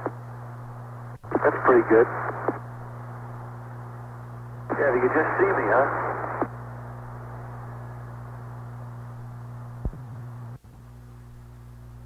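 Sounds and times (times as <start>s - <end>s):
radio click: 0.0s - 0.2s, 1.2s - 2.7s, 4.7s - 6.6s
radio hiss: 0.0s - 10.6s
low hum: 0.0s - 12.0s.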